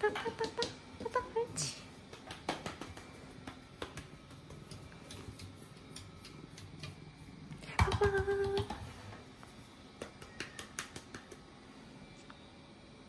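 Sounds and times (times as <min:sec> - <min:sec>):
hand patting stool: 0:02.0 - 0:07.0, 0:07.6 - 0:09.0, 0:10.0 - 0:11.5.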